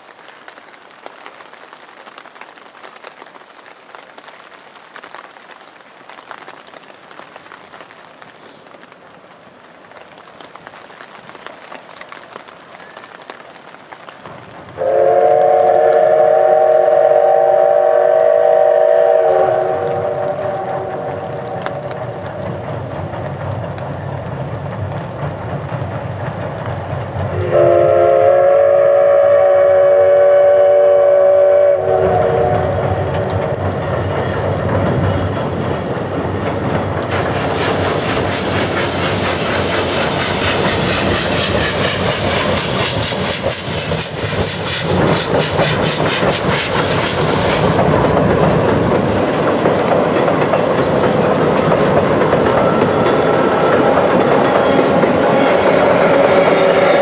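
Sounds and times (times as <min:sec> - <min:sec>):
train rumbling along rails: 0:06.1 - 0:57.0
high steam hiss: 0:08.3 - 0:08.9, 0:14.7 - 0:57.0
steam locomotive whistle: 0:14.8 - 0:21.9, 0:27.3 - 0:33.3, 0:52.6 - 0:57.0.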